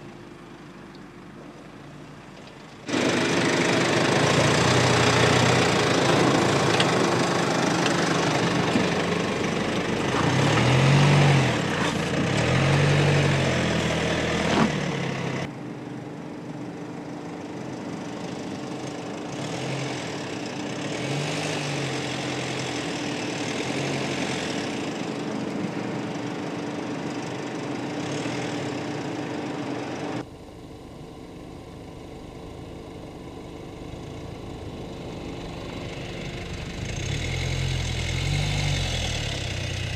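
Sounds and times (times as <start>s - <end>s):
car engine revving under load: 31.6s - 39.9s.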